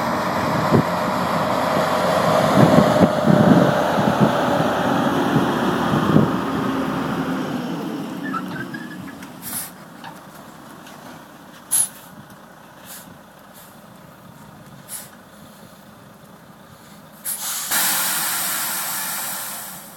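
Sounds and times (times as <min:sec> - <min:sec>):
truck engine idling: 0:00.0 - 0:19.9
air brakes hissing: 0:08.2 - 0:09.9, 0:11.7 - 0:12.1, 0:12.8 - 0:13.8, 0:14.9 - 0:15.8, 0:16.7 - 0:19.9.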